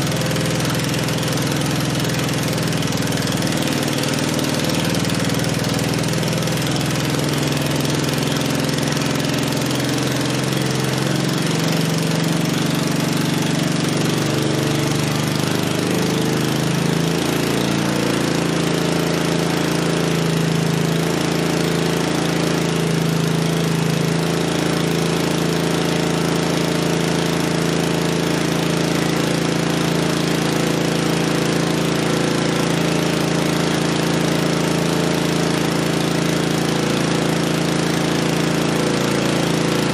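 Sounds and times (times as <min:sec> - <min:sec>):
engine running steadily: 0:00.0 - 0:39.9.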